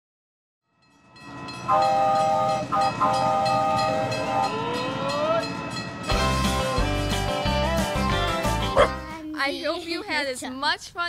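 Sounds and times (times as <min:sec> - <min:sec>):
steam train rumble: 0:01.2 - 0:08.5
steam train whistle: 0:01.6 - 0:05.8.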